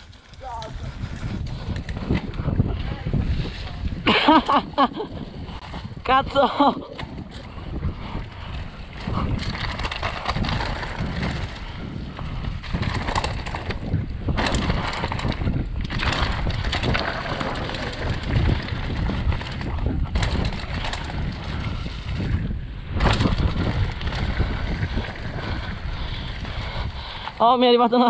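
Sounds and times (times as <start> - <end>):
bike rattling and knocking: 0.0 - 28.0
wind buffeting microphone: 0.0 - 28.0
tyres rolling on leaves and dirt: 8.9 - 22.3.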